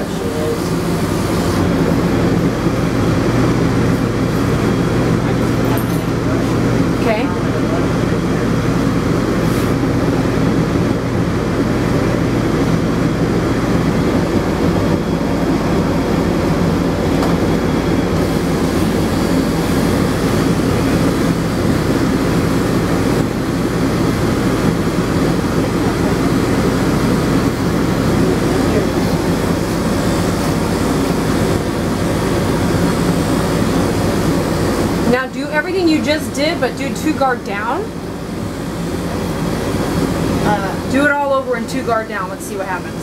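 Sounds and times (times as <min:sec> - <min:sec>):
electric clippers humming: 0:16.6 - 0:24.0.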